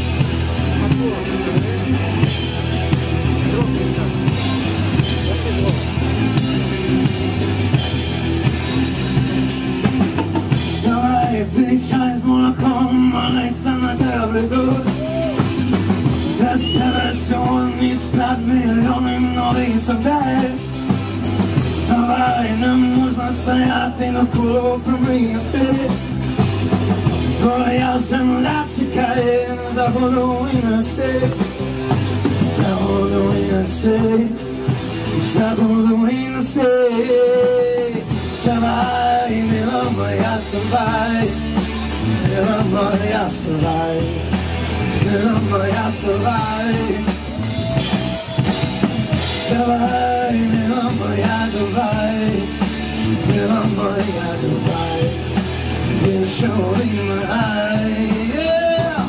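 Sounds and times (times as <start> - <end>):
drums: 0.0 - 59.0
electric guitars: 0.0 - 59.0
person singing: 10.8 - 20.8, 32.3 - 59.0.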